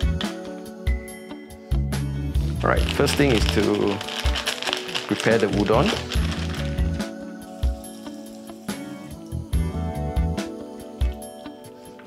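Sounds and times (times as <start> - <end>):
background music with bass line: 0.0 - 4.2, 5.4 - 12.0.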